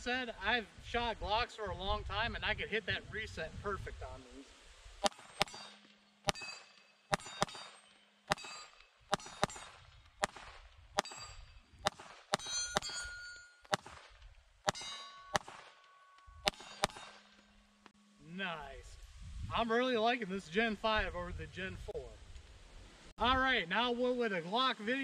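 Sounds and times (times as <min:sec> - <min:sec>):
metallic ring: 0:05.0 - 0:10.0, 0:11.0 - 0:11.7, 0:12.3 - 0:13.8, 0:14.6 - 0:18.2
pistol shots: 0:06.3 - 0:11.3, 0:11.9 - 0:13.1, 0:13.7 - 0:15.8, 0:16.4 - 0:17.2.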